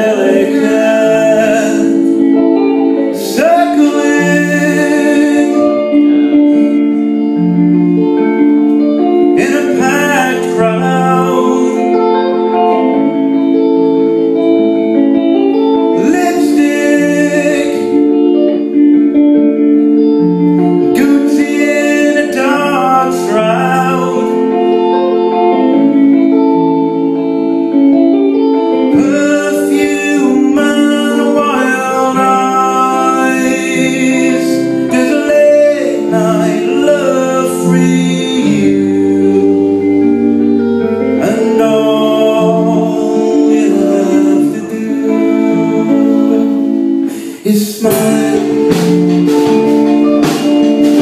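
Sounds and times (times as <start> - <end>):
man singing: 0.0 - 26.8, 28.7 - 51.0
electric guitar chords: 0.0 - 51.0
drums: 47.9 - 51.0.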